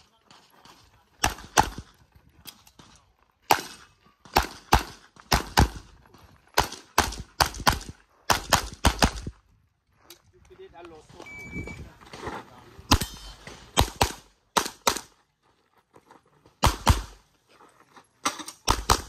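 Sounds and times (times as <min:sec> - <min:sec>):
pistol shots in quick pairs: 0:01.2 - 0:01.9, 0:03.5 - 0:05.9, 0:06.6 - 0:09.3, 0:12.9 - 0:15.1, 0:16.6 - 0:17.2, 0:18.6 - 0:19.0.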